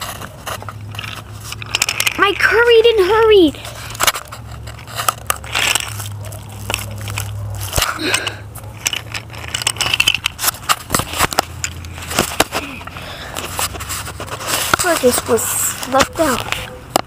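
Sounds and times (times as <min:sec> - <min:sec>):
toy train pushed through grass: 0:00.0 - 0:17.0
dry grass crunching and rustling: 0:03.6 - 0:08.0.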